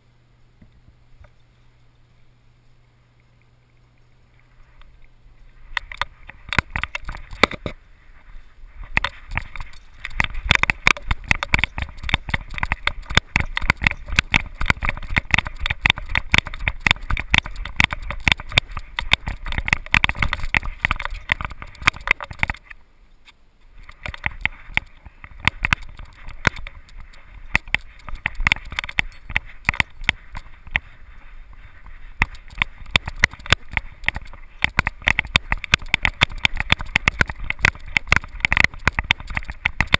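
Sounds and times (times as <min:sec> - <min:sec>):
camera mount rattling: 0:05.7 - 0:07.8.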